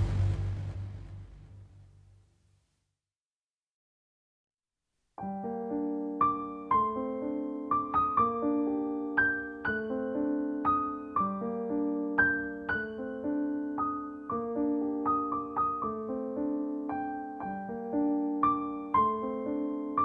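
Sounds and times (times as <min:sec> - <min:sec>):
slow piano melody: 0:05.2 - 0:20.0.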